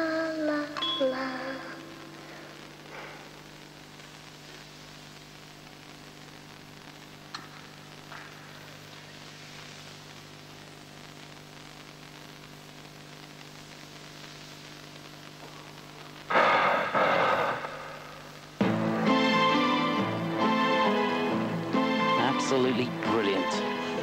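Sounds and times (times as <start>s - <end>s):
tape hiss: 0.0s - 24.0s
low hum: 15.0s - 19.1s.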